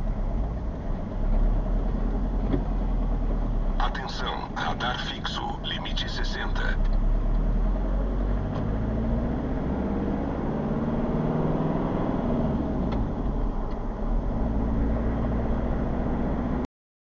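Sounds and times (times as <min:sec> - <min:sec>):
vehicle engine hum: 0:00.0 - 0:16.7.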